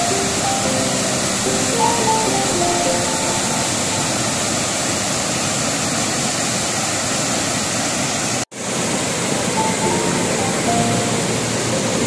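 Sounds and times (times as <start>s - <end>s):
waterfall rushing: 0.0s - 12.0s.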